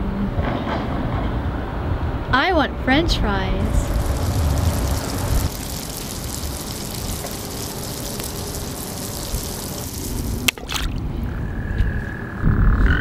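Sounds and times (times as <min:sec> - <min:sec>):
rushing water: 0:03.6 - 0:11.3.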